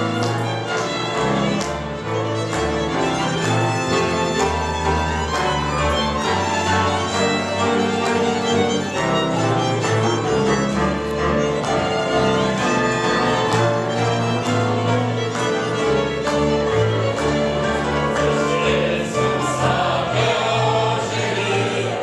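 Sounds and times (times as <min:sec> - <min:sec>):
fiddles playing tune: 0:00.0 - 0:22.0
walking double bass: 0:00.0 - 0:22.0.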